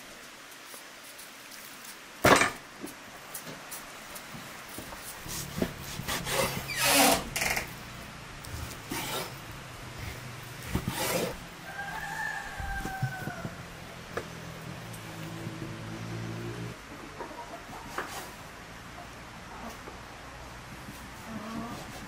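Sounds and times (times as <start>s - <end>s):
chicken calling: 11.3s - 13.9s.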